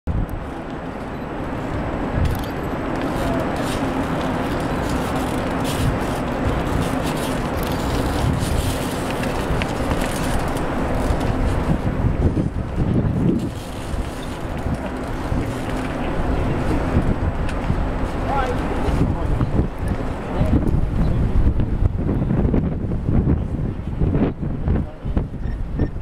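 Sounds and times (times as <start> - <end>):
low city rumble: 0.1 - 26.0
crowd murmur: 1.3 - 11.8, 12.6 - 21.6
faint clicks and scrapes: 2.3 - 11.8.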